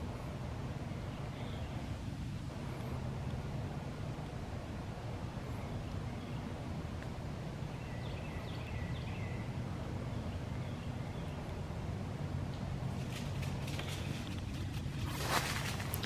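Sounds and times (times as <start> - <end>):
low outdoor rumble: 0.0 - 16.0
bird chirps: 7.6 - 11.6.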